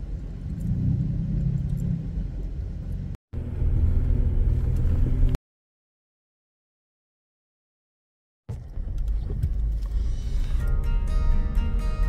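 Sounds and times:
vehicle engine low rumble: 0.0 - 5.4, 8.5 - 12.0.

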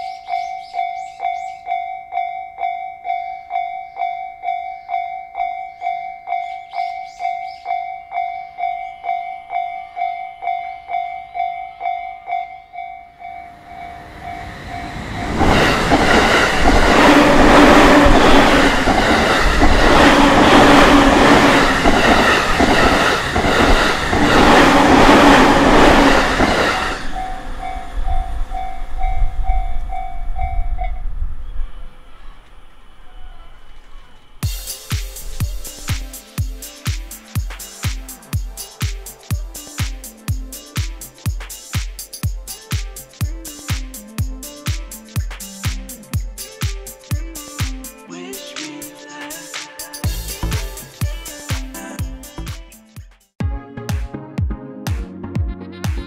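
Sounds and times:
level-crossing warning bell ringing: 0.0 - 30.9
train wheels rumbling over rails: 13.5 - 30.5.

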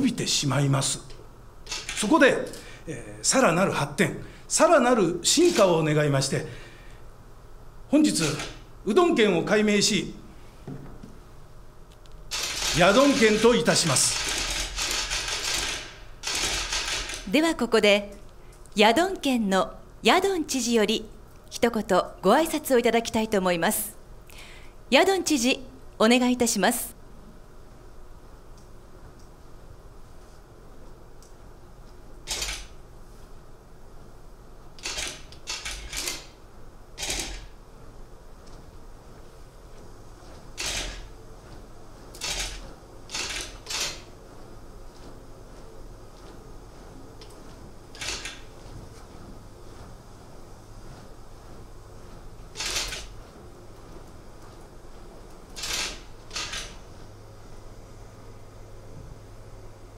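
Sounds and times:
steady low hum: 0.0 - 59.9
costume rustling and scuffing: 37.5 - 58.0.

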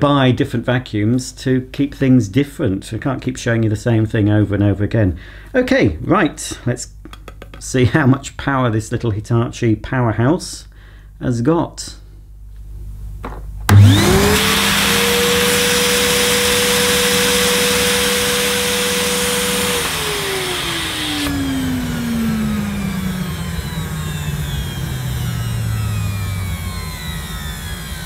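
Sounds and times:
vacuum cleaner switch click: 13.7 - 16.7, 17.4 - 24.9
vacuum cleaner motor whine: 13.7 - 28.0.

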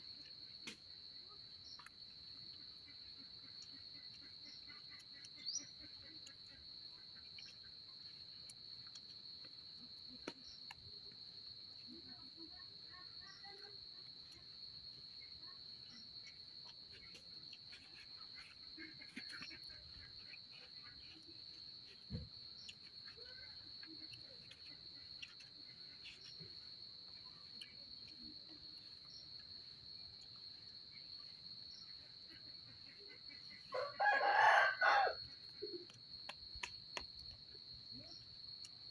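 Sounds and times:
crickets trilling: 0.0 - 38.9
rooster crowing: 33.7 - 35.2.

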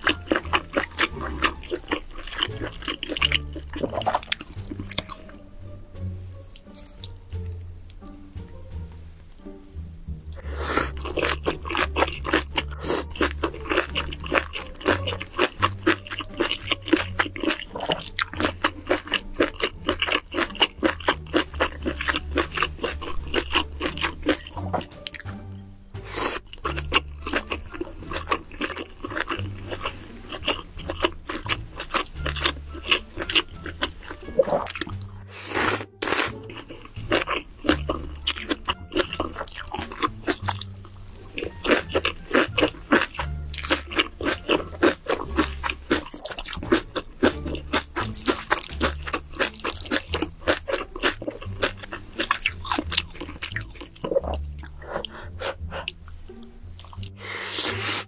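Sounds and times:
wet chewing and crunching: 0.0 - 5.4, 6.4 - 8.2, 9.2 - 25.4, 26.1 - 58.0
background music with bass line: 0.0 - 58.0.

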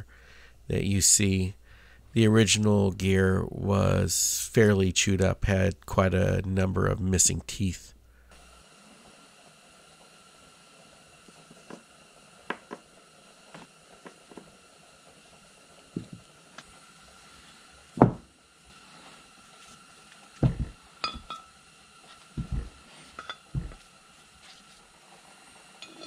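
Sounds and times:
heavy thud on workbench: 18.0 - 18.3, 20.4 - 20.8.

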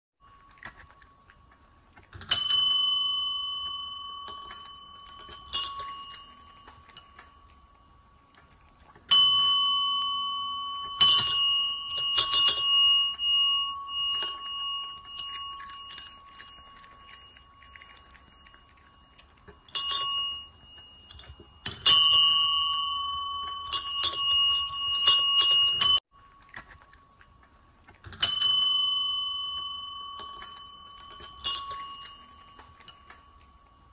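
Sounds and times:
desk service bells dinging: 2.3 - 7.8, 28.2 - 33.9.

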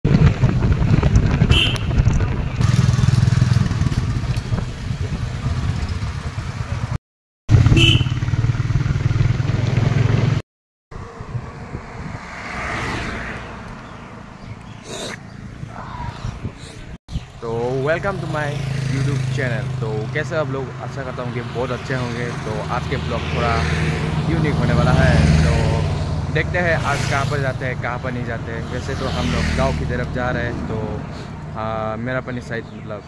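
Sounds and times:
motorcycle engine rumble: 0.1 - 10.4, 13.4 - 32.0
wind rushing: 11.0 - 14.4, 15.3 - 17.0.

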